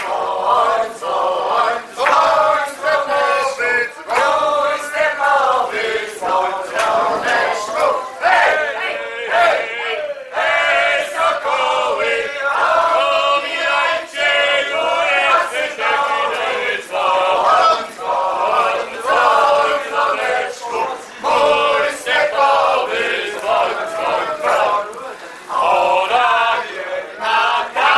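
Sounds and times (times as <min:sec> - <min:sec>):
group of people singing: 0:00.0 - 0:27.9.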